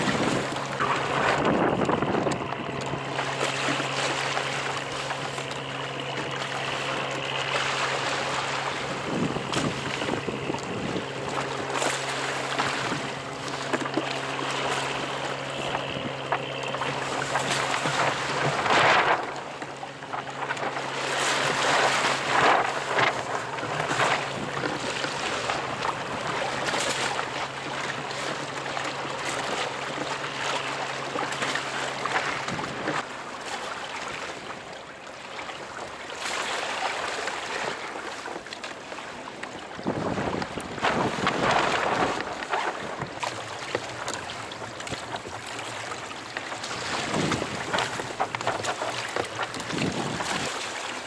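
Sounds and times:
wind on microphone: 0:00.0 - 0:03.1, 0:08.8 - 0:11.8, 0:39.8 - 0:43.2, 0:46.7 - 0:50.6
steady low hum: 0:00.0 - 0:33.0
water slapping kayak hull: 0:00.0 - 0:51.0.

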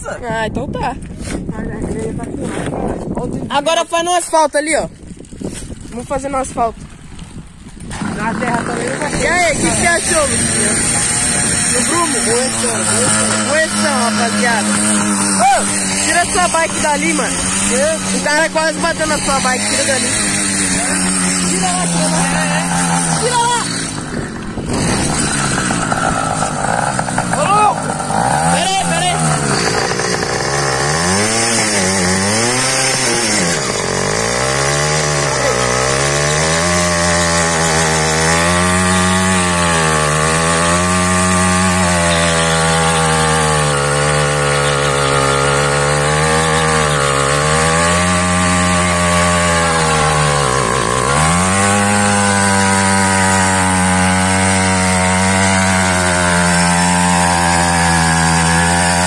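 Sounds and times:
tyre spinning on asphalt: 0:07.4 - 0:37.7
two-stroke engine revving: 0:07.6 - 0:59.0.

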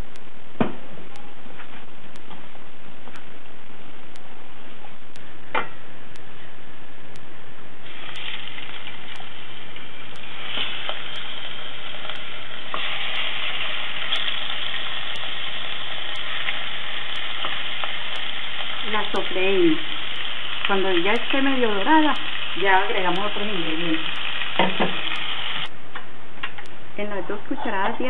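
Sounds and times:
meat sizzling in a pot: 0:07.8 - 0:25.7.

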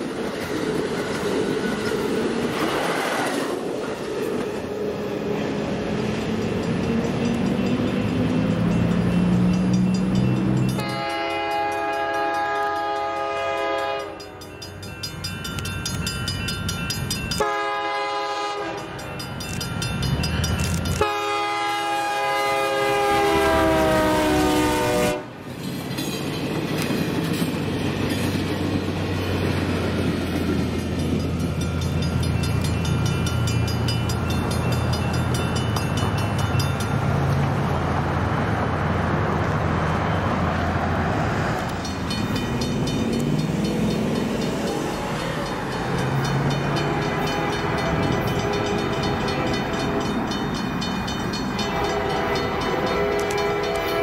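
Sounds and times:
train cars rumbling over rails: 0:00.0 - 0:54.0
locomotive horn blasts: 0:10.8 - 0:14.4, 0:17.4 - 0:18.9, 0:21.0 - 0:25.4, 0:46.8 - 0:50.2, 0:51.6 - 0:54.0.

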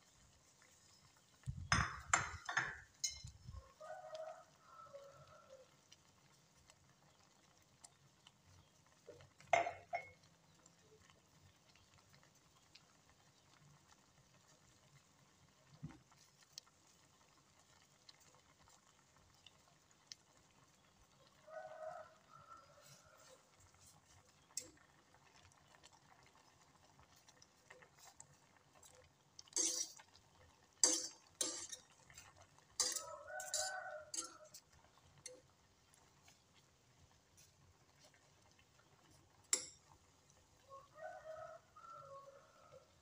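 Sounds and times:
utensil clinking against a pot: 0:01.5 - 0:03.5, 0:09.4 - 0:10.3, 0:24.2 - 0:25.1, 0:28.8 - 0:35.6, 0:39.4 - 0:40.0
utensil stirring in a pot: 0:22.6 - 0:40.9.

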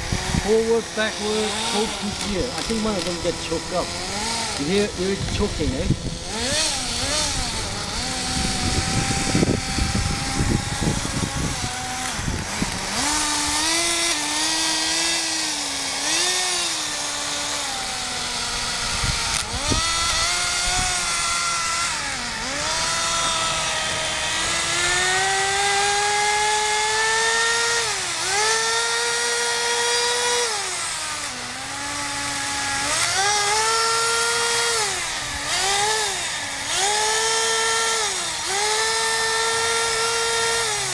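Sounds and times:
low rumbling noise: 0:00.0 - 0:14.5
small nitro engine whining: 0:00.0 - 0:40.9.

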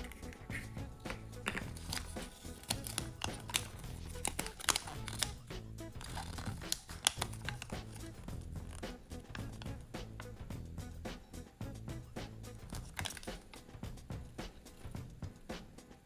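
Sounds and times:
paper leaflet rustling and clicking: 0:00.0 - 0:09.7, 0:12.6 - 0:13.6
background music: 0:00.0 - 0:16.0.

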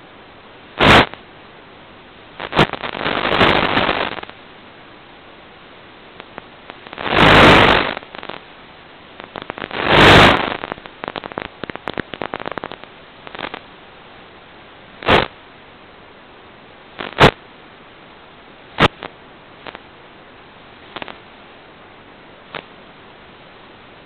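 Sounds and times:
crackling static bursts: 0:00.0 - 0:24.0
steady faint hiss: 0:00.0 - 0:24.0.

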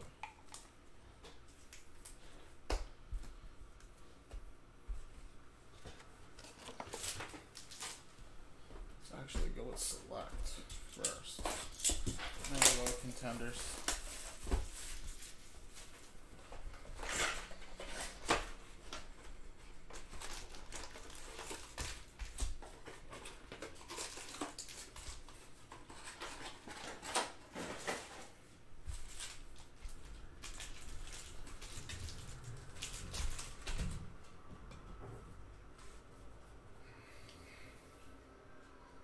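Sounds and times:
foil wrappers crinkling: 0:06.4 - 0:08.1, 0:10.9 - 0:16.2, 0:16.8 - 0:33.9.

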